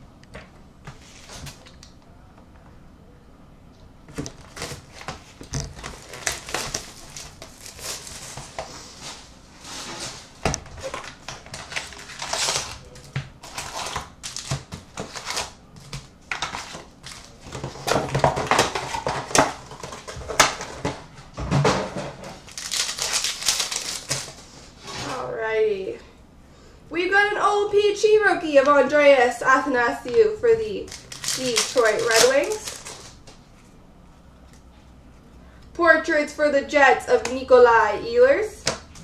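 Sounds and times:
cardboard and wrappers crinkling: 4.1s - 21.0s, 22.0s - 24.6s, 30.7s - 33.7s.

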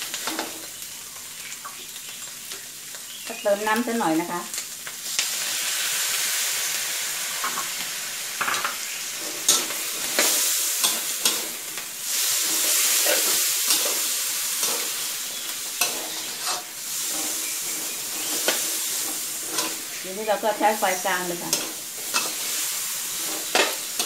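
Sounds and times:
food sizzling in a wok: 0.0s - 24.0s
metal spatula scraping wok: 7.4s - 24.0s.

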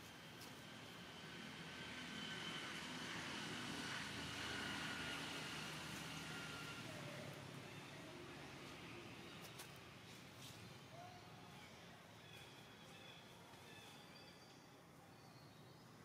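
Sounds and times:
distant engine passing: 0.2s - 10.3s.

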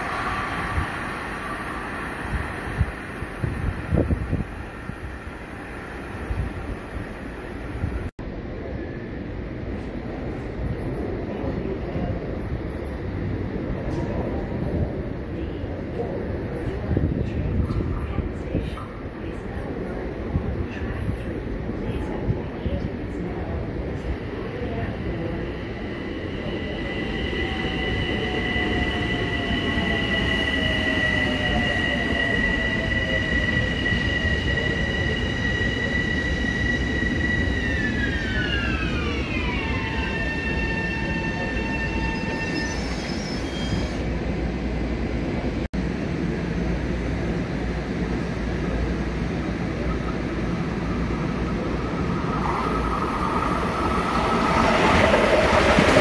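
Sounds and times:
high train whine: 0.0s - 56.0s
wheels rumbling on rail: 41.0s - 56.0s.

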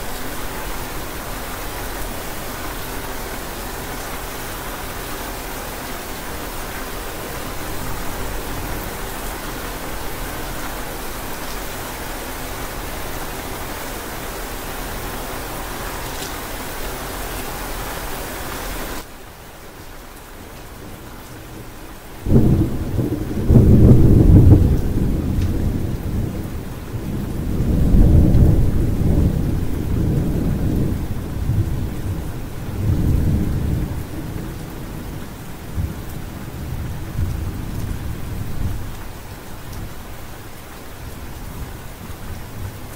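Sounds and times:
rain hissing: 0.0s - 42.9s
thunder rumbling: 22.2s - 39.0s.

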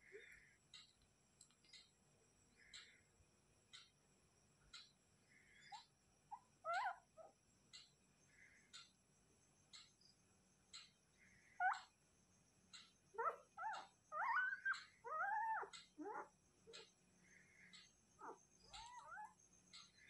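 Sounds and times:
puppy whimpering: 11.6s - 11.9s, 13.2s - 16.3s, 18.2s - 19.4s.

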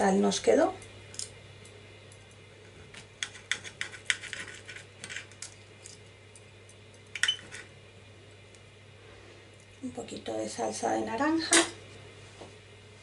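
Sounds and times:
cutlery scraping a plate: 3.2s - 5.4s.

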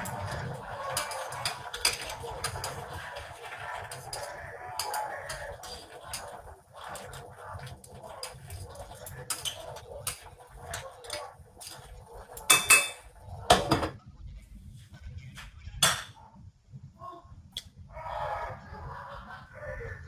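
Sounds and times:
utensils and dishes clinking: 0.0s - 14.0s.

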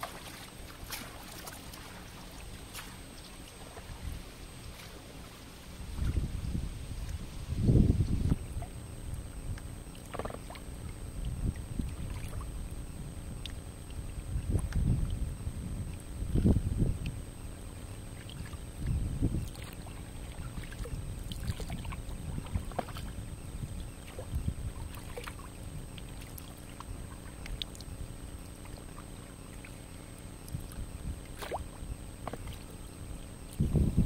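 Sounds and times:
water splashing and dripping: 0.0s - 4.9s
wind rumble on microphone: 0.0s - 28.5s, 29.9s - 34.0s.

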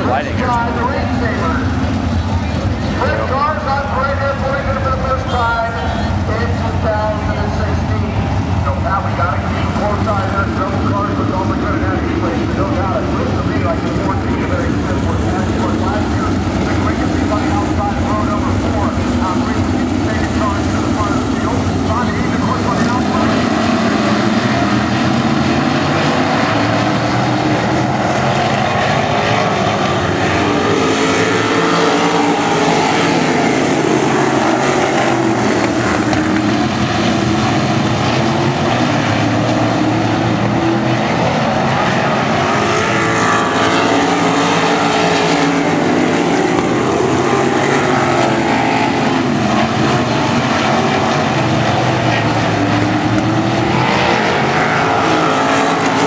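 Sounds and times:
racing car engines at full throttle: 0.0s - 56.0s.

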